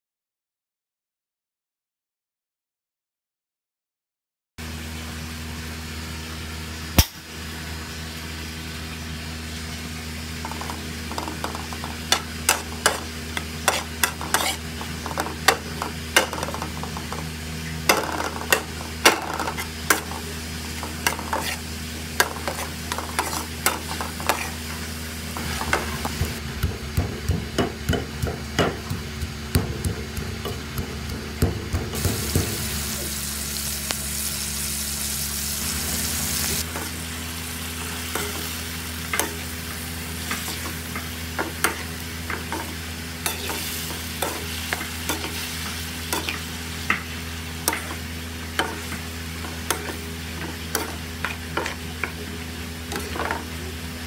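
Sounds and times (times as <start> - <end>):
leaves sizzling in oil: 4.6 - 54.0
metal spoon scraping a wok: 10.4 - 26.4, 36.4 - 37.0, 37.8 - 53.6.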